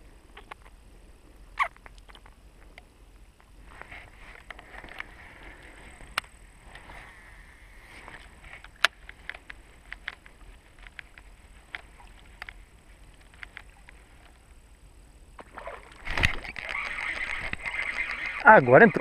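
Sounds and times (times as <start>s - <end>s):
fishing reel clicks and ticks: 13.2s - 14.4s, 16.1s - 19.0s.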